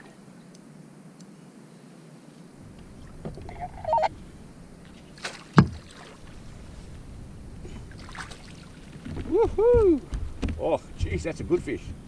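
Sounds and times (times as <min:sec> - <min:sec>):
wind rumble on microphone: 0:02.6 - 0:12.0
handling noise on plastic kayak: 0:02.7 - 0:04.0, 0:04.8 - 0:07.1, 0:08.2 - 0:12.0
short high wavering sound: 0:03.5 - 0:04.2.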